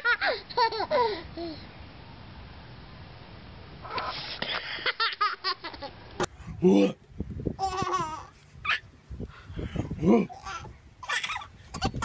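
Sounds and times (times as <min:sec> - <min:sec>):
toddler laughing: 0:00.0 - 0:01.6, 0:07.6 - 0:08.8, 0:10.2 - 0:12.0.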